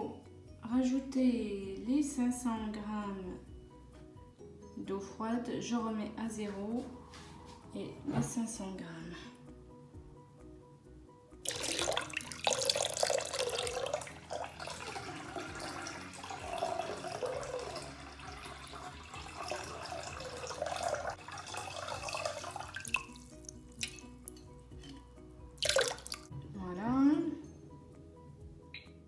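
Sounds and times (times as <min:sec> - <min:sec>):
water dripping: 0:11.4 - 0:25.0, 0:25.6 - 0:26.3
water pouring into metal bowl: 0:11.5 - 0:24.4, 0:25.6 - 0:26.3.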